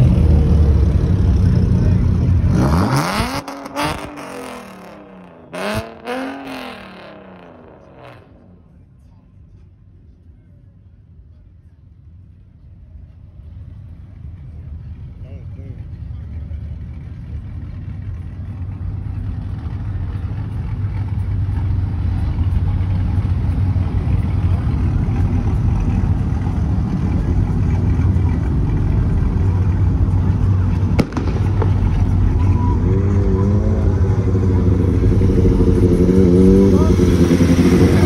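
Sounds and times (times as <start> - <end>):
car engine rumbling: 0.0 - 38.0
voices: 24.1 - 38.0
sharp exhaust bang: 30.9 - 32.4.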